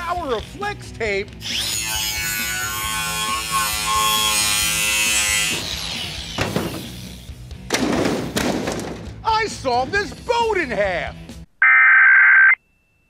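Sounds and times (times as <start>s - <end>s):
angle grinder cutting metal: 1.4s - 7.3s
metal clatter and crash: 7.7s - 9.2s.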